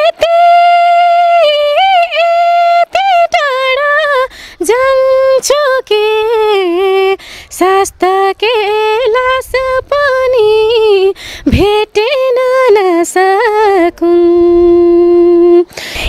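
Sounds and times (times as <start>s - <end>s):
woman singing unaccompanied: 0.0s - 16.0s
singer breathing: 4.3s - 4.6s, 7.2s - 7.5s, 11.1s - 11.5s, 15.7s - 16.0s.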